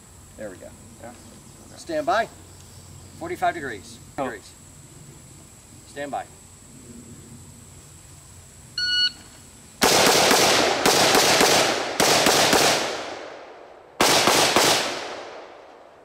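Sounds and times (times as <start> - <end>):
rifle shots echoing: 9.8 - 16.0.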